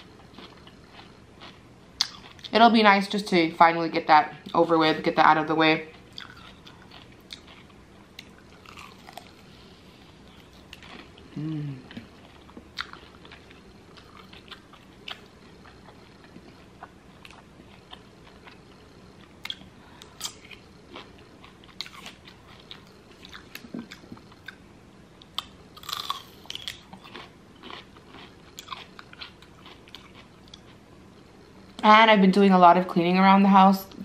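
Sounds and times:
person chewing wetly: 0:00.1 - 0:02.5, 0:05.9 - 0:09.5, 0:10.2 - 0:24.6, 0:25.3 - 0:30.8.

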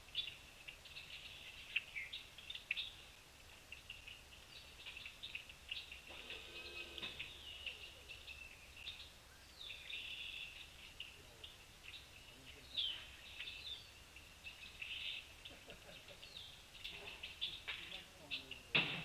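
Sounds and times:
birds chirping: 0:00.0 - 0:19.0.

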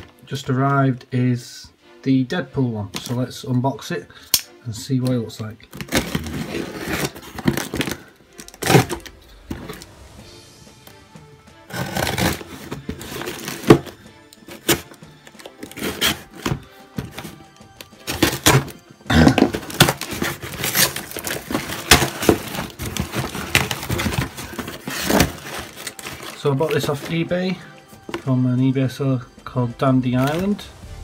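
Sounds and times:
background music: 0:00.0 - 0:31.0
tape tearing: 0:05.8 - 0:09.2, 0:11.7 - 0:16.6, 0:18.0 - 0:27.0
knife cutting cardboard: 0:11.7 - 0:13.9, 0:19.7 - 0:26.4.

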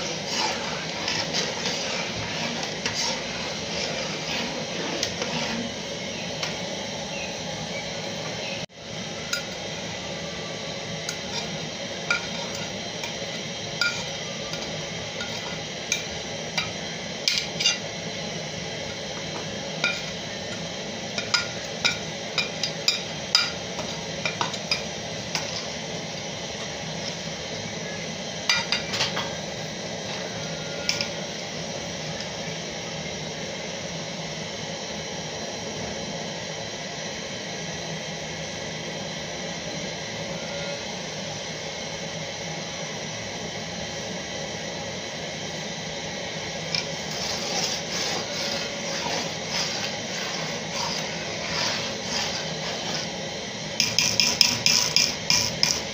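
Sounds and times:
metal spoon clinking and scraping: 0:15.2 - 0:16.0, 0:53.8 - 0:55.9.

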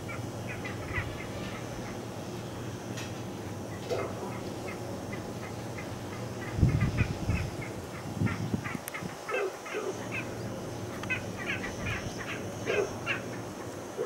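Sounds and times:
bird calling harshly: 0:11.1 - 0:13.8.

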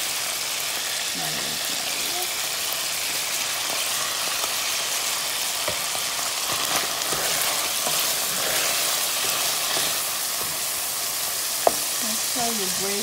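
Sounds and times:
meat sizzling in frying pan: 0:00.0 - 0:13.0
spatula scraping pan: 0:05.6 - 0:12.0.

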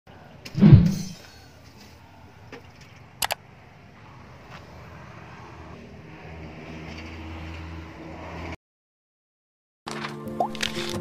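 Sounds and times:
engine low hum: 0:01.3 - 0:08.6.

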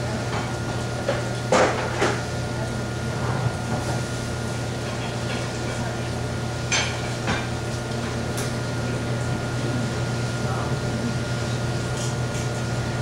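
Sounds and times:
low ventilation hum: 0:00.0 - 0:13.0.

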